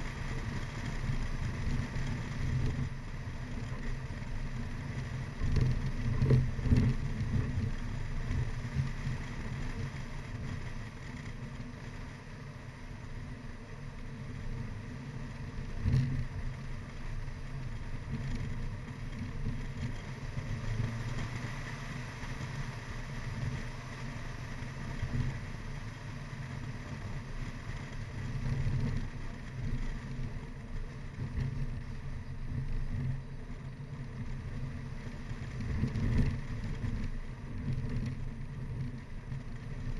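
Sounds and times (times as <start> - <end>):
car engine driving hard: 0.0 - 39.9.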